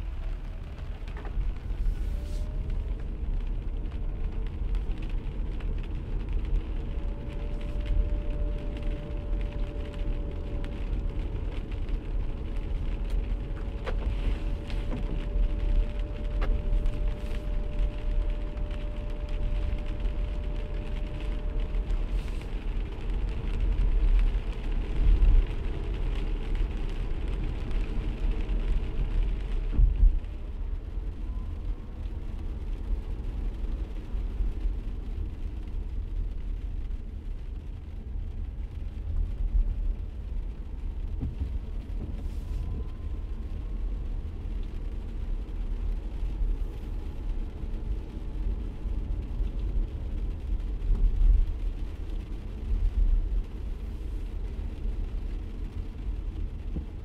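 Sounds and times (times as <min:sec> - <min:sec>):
tyres hissing on wet road: 0:00.0 - 0:29.9, 0:40.9 - 0:42.8
road and engine rumble: 0:00.0 - 0:57.0.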